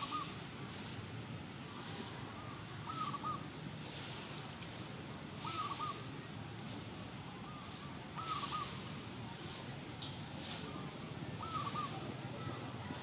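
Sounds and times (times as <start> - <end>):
bird calling: 0.0 - 0.4, 2.9 - 3.4, 5.4 - 6.1, 7.4 - 8.9, 11.4 - 12.7
soft outdoor hiss: 0.0 - 13.0.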